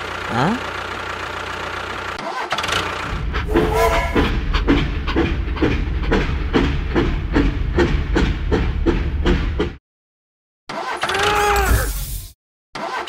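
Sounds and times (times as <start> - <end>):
low rumble: 3.1 - 9.1
steam train chugging: 3.1 - 9.8.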